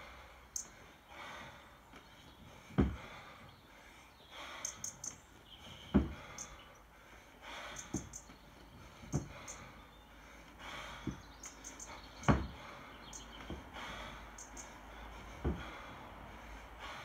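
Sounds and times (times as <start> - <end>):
hard hissing breaths: 0.0 - 17.0
kettlebell dull thumps: 2.7 - 3.3, 5.9 - 6.4, 7.8 - 8.2, 9.0 - 9.5, 10.9 - 11.4, 12.2 - 12.7, 13.4 - 13.9, 15.3 - 16.0.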